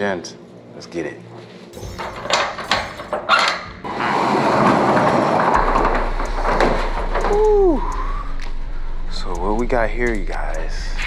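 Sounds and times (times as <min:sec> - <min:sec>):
metal roll-up door rattling: 0:01.8 - 0:03.8, 0:04.4 - 0:07.9
door squealing: 0:01.8 - 0:08.3.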